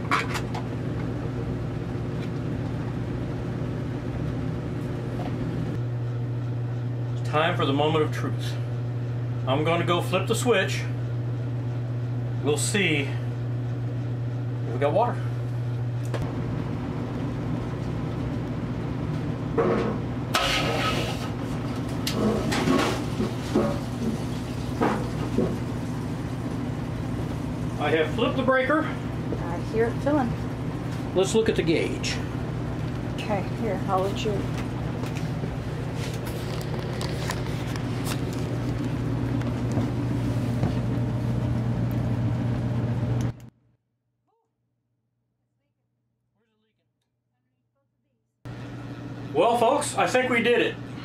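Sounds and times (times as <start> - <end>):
low machine hum: 0.0 - 43.5, 47.4 - 51.0
water and air hissing through pipes: 20.4 - 25.6.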